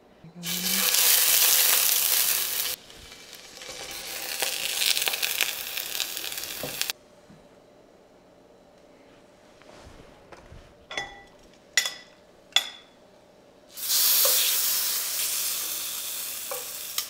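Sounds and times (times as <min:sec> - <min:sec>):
bread sizzling in skillet: 0:00.4 - 0:06.9, 0:13.7 - 0:17.0.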